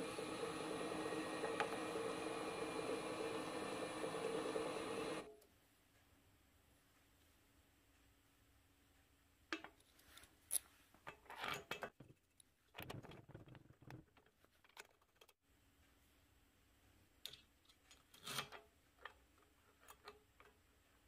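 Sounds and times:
milling machine running: 0:00.0 - 0:05.3.

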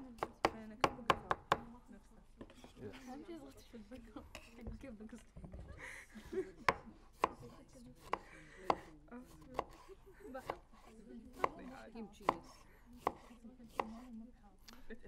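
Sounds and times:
knife knocking on cutting board: 0:08.1 - 0:10.6.

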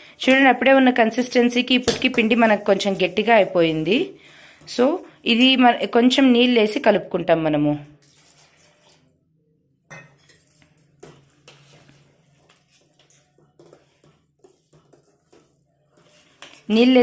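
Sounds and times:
spoon scraping a steel bowl: 0:10.0 - 0:17.0.

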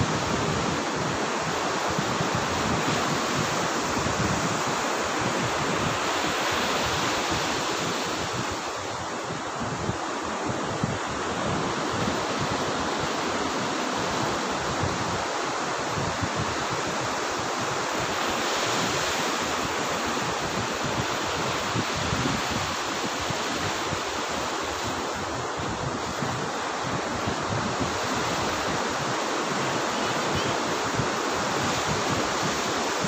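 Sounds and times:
surf washing up beach: 0:00.0 - 0:33.0
wind rumbling on microphone: 0:00.0 - 0:33.0.

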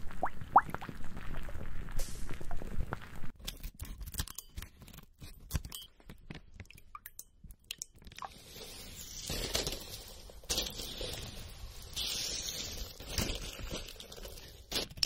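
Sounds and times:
blister packs crackling and crunching: 0:12.7 - 0:15.0.

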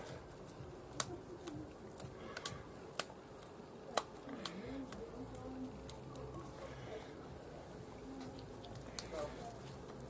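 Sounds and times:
hands patting minced meat: 0:00.0 - 0:06.6.

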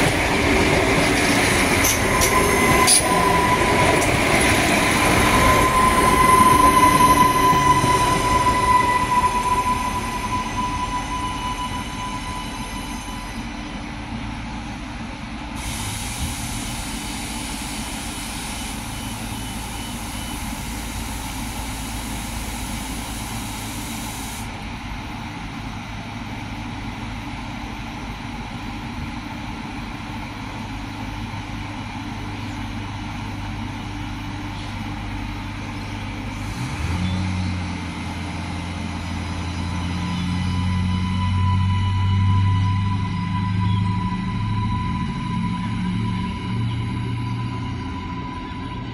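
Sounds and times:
diesel railcar engine running: 0:00.0 - 0:48.9
air hissing: 0:15.6 - 0:24.5.

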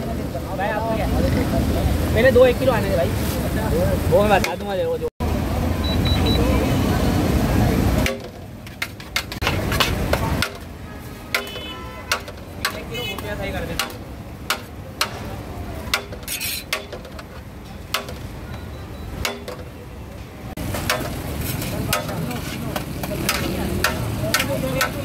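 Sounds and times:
metal spoon scraping cooking pot: 0:16.0 - 0:18.2.

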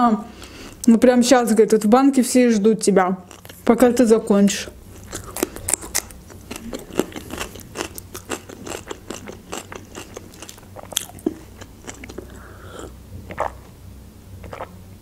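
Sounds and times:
chewing crisp cucumber: 0:03.2 - 0:03.8, 0:04.9 - 0:13.7, 0:14.4 - 0:14.8.

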